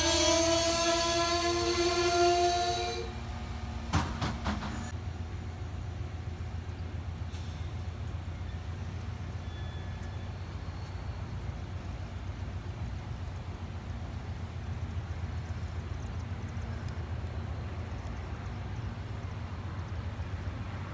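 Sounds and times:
locomotive horn: 0.0s - 3.9s
train low rumble: 0.0s - 20.9s.

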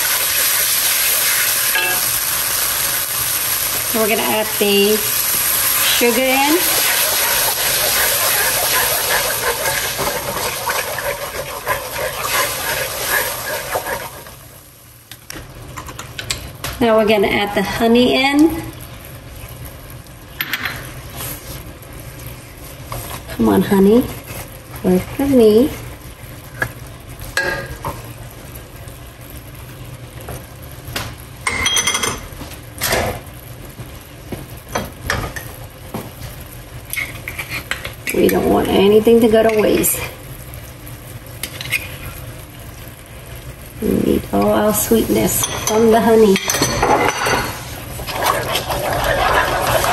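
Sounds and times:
sauce sizzling in a wok: 0.0s - 15.7s, 16.4s - 49.9s
wooden spoon stirring: 6.6s - 14.2s, 48.0s - 49.9s.

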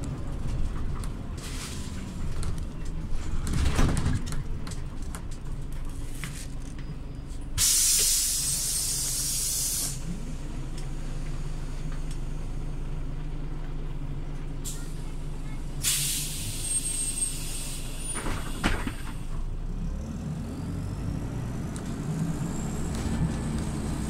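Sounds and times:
bus engine droning: 0.0s - 24.0s
compressed air hiss: 7.6s - 10.0s, 15.8s - 16.6s.

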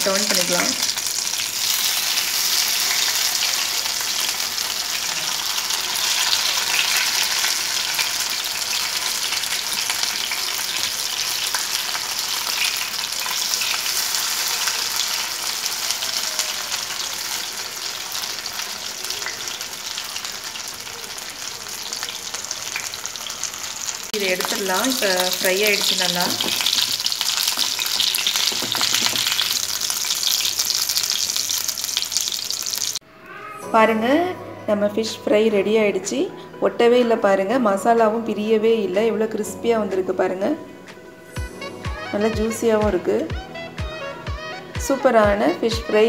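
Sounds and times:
fish sizzling in hot oil: 0.0s - 33.0s.

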